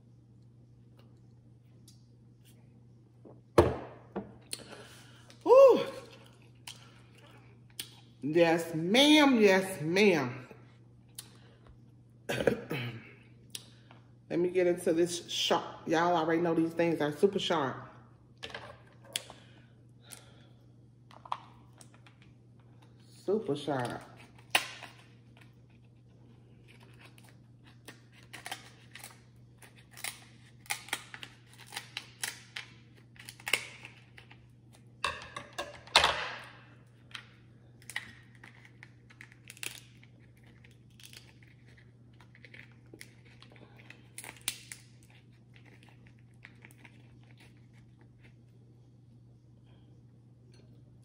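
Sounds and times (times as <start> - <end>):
faint steady hum: 0.0 - 51.0.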